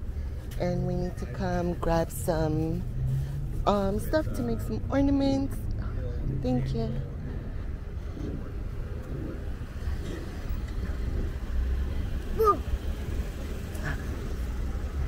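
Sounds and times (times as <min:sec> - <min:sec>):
car engine rumble: 0:00.0 - 0:15.0
falling voice-like cry: 0:12.4 - 0:12.7.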